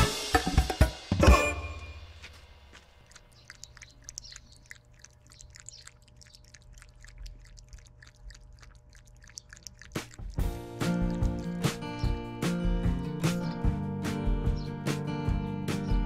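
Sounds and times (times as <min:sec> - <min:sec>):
cat chewing grass: 0:02.3 - 0:13.7.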